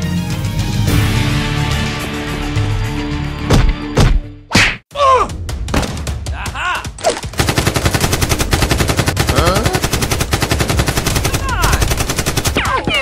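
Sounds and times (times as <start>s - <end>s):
person crying out: 6.3s - 6.9s
rapid automatic gunfire: 7.3s - 12.8s.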